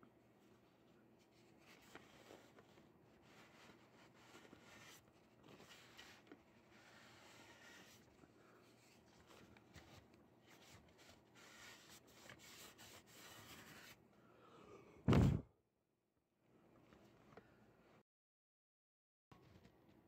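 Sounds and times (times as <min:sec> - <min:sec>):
loud thump: 0:15.1 - 0:15.5.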